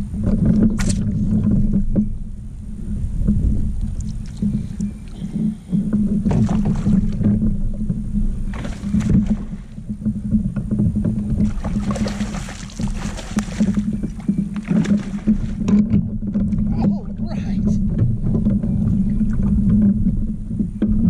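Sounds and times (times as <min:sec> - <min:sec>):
steady low rumble: 0:00.0 - 0:21.0
fish splashing at water surface: 0:11.4 - 0:15.6.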